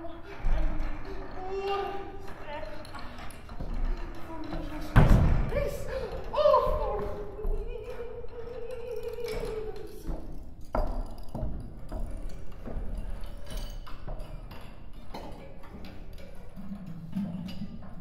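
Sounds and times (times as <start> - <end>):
taps and knocks: 9.4 - 16.4.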